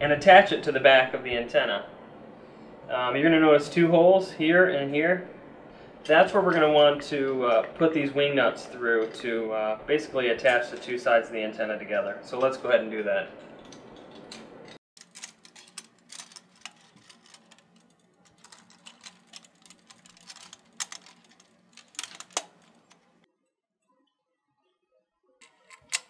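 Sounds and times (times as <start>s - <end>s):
metallic clicks and rattles: 13.5s - 23.1s, 25.4s - 26.0s.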